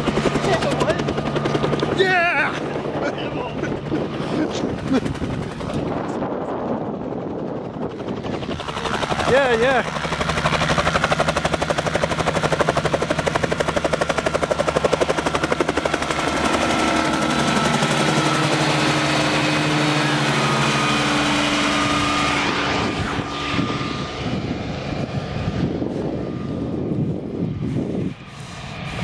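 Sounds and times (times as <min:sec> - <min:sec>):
helicopter rotor chopping: 0:00.0 - 0:29.0
piston engine drone: 0:10.4 - 0:29.0.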